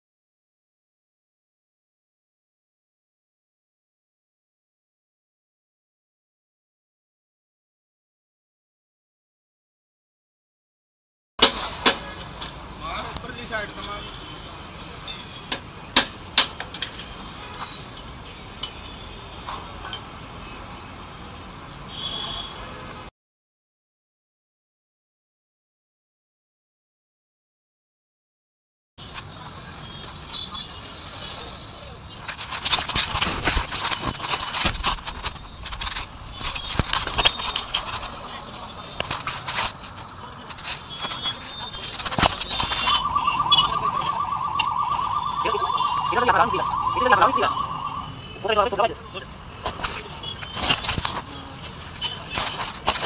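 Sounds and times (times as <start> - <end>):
metal tools clinking: 16.4 - 18.8, 19.5 - 20.1.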